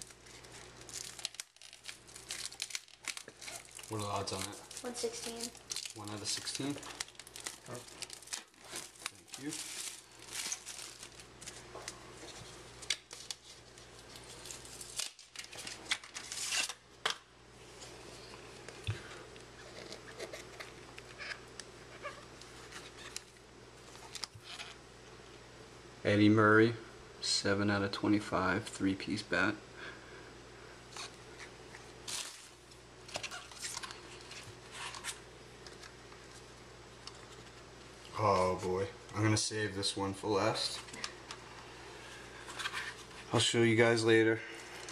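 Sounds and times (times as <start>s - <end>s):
plastic wrap crinkling: 0.0s - 16.8s, 18.6s - 24.8s, 30.9s - 38.8s.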